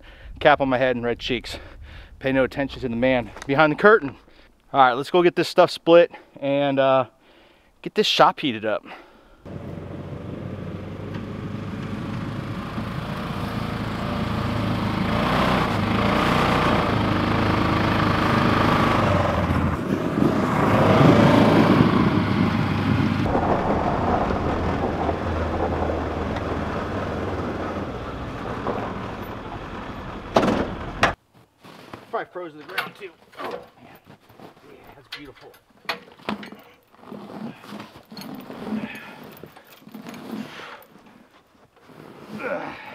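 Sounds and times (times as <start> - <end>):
utility vehicle engine passing: 9.5 - 31.1.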